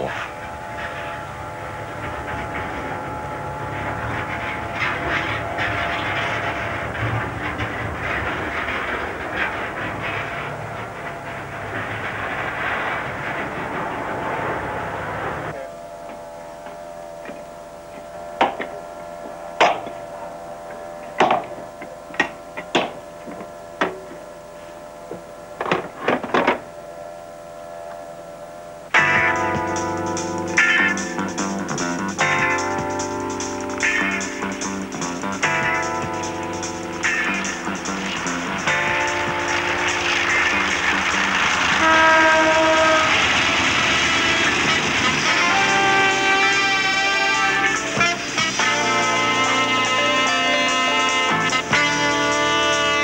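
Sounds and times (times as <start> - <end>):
high whine: 0.0 - 53.0
machine hum: 0.0 - 53.0
train engine rumble: 0.0 - 53.0
sharp knocks and clanks: 1.8 - 18.8.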